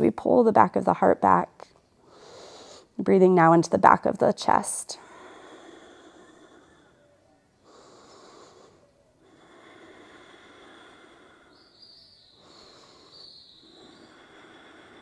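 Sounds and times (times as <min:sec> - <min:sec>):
person breathing deeply: 0:02.0 - 0:03.0, 0:05.0 - 0:15.0.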